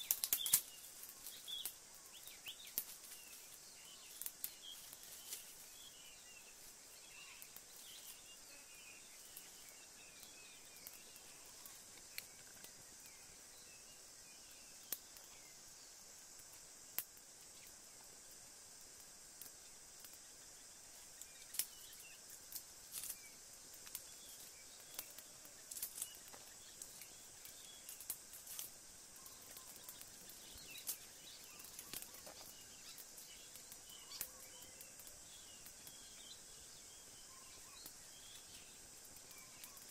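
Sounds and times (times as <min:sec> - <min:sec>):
sharp clicks and crackles: 0:00.0 - 0:01.8, 0:21.2 - 0:24.1, 0:24.8 - 0:36.1
faint bird chirps: 0:00.0 - 0:16.1, 0:19.6 - 0:22.4, 0:29.0 - 0:39.9
insect hiss: 0:00.0 - 0:39.9.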